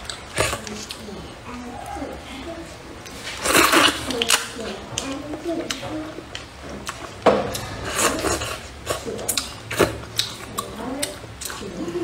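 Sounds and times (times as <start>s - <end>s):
chewing mouth sounds: 3.0s - 11.9s
chopsticks stirring noodles: 3.0s - 12.0s.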